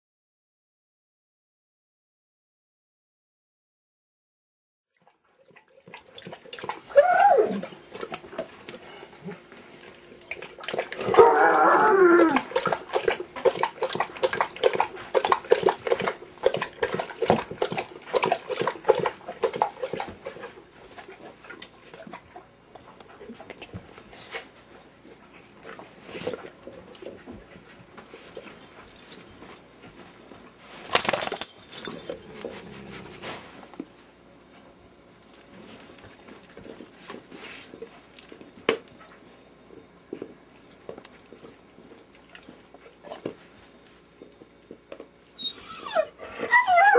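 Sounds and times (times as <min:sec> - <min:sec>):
dogs whining and growling: 0:06.6 - 0:09.9, 0:10.7 - 0:20.2, 0:31.2 - 0:33.5, 0:45.3 - 0:46.9.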